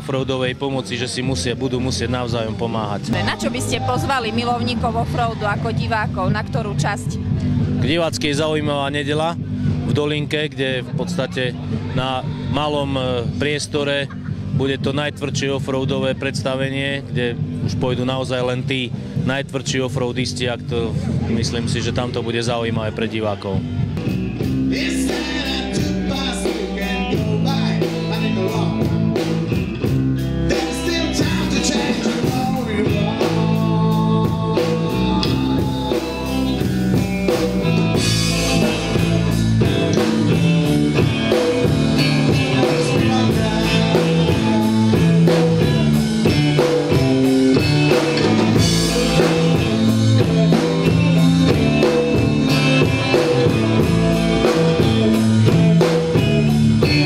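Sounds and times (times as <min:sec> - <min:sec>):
bass guitar: 0:00.0 - 0:57.0
drum kit with cymbals: 0:23.6 - 0:57.0
electric guitar: 0:23.6 - 0:57.0
person singing: 0:24.7 - 0:29.0, 0:30.5 - 0:36.9, 0:42.0 - 0:47.0, 0:48.2 - 0:53.6.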